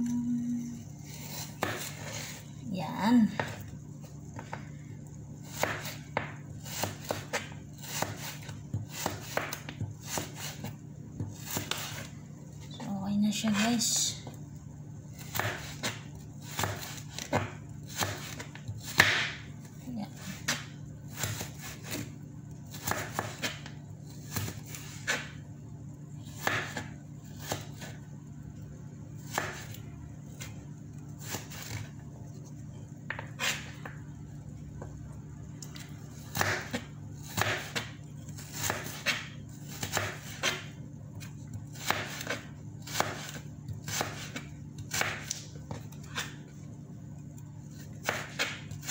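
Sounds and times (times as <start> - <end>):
person talking: 0.0 - 0.8, 2.6 - 3.5, 12.7 - 14.3
steady low hum: 0.0 - 48.9.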